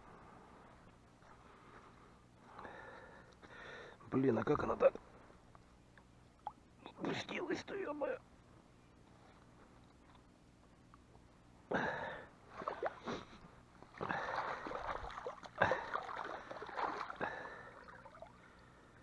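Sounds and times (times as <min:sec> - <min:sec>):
water splashing and pouring: 0:14.0 - 0:18.4.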